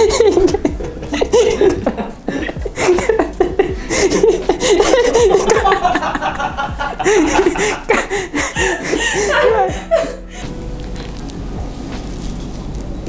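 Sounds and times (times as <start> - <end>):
man laughing hard: 0.0 - 10.4.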